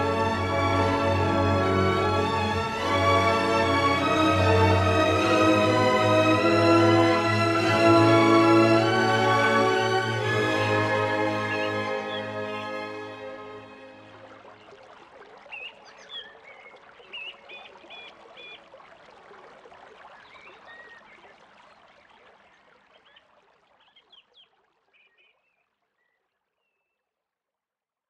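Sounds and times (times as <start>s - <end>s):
water trickling: 0.0s - 27.0s
birds chirping: 11.2s - 12.9s, 14.2s - 18.7s, 20.1s - 26.2s.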